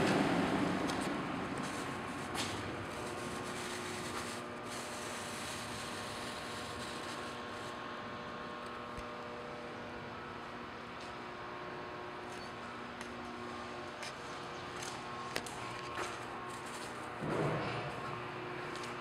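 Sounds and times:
fan air rushing: 0:00.0 - 0:10.2.

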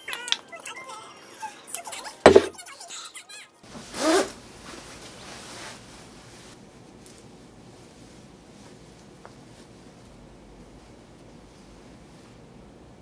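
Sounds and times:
bowl knocking on table: 0:02.3 - 0:02.5
jacket zip pulled: 0:04.0 - 0:04.3.

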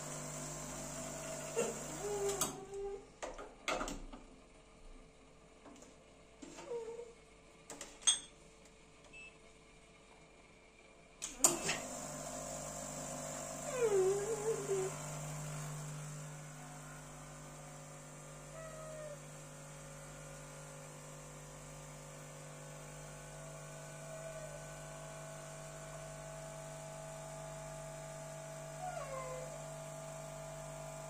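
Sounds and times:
espresso machine pump humming: 0:00.0 - 0:02.7, 0:11.3 - 0:31.0.

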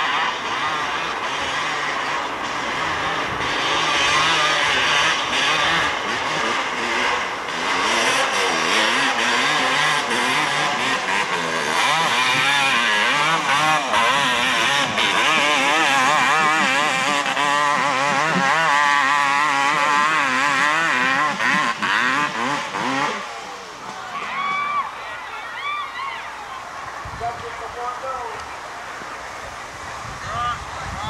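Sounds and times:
quad bike engine revving hard: 0:00.0 - 0:24.7.

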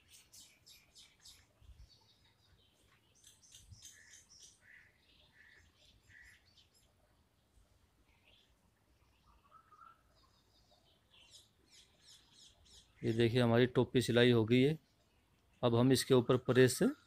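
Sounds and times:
faint bird chirps: 0:00.0 - 0:13.6.

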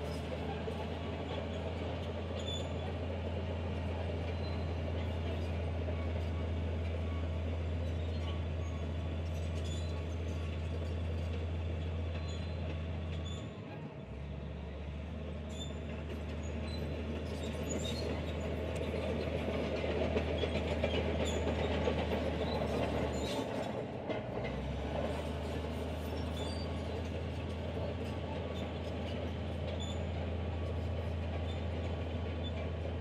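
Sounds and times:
diesel engine running: 0:00.0 - 0:33.0
tracks clattering: 0:15.8 - 0:33.0.

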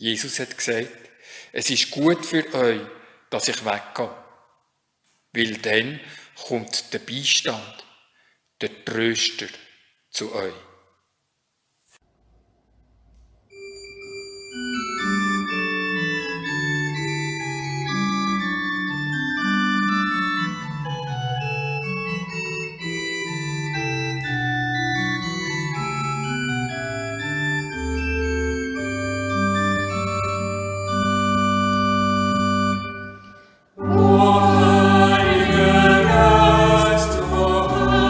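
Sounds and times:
pipe organ chords: 0:13.6 - 0:38.0
organ pedal bass notes: 0:14.4 - 0:38.0.

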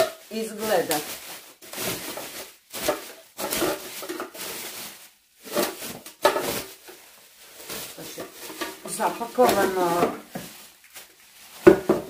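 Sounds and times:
plastic foil rustling: 0:00.0 - 0:12.0.

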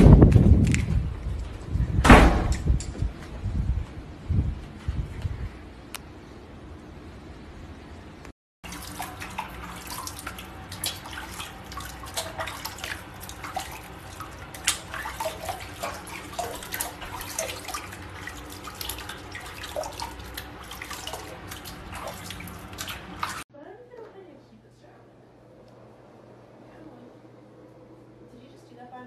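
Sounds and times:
water splashing in plastic tub: 0:08.6 - 0:23.4.

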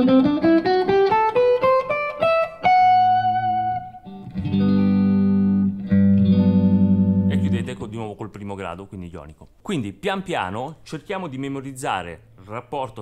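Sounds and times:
sustained guitar chords: 0:00.0 - 0:07.8.

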